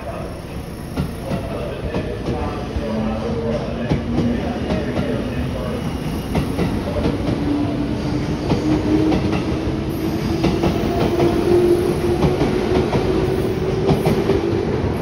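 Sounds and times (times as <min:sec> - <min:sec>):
rumble of train cars: 0:00.0 - 0:15.0.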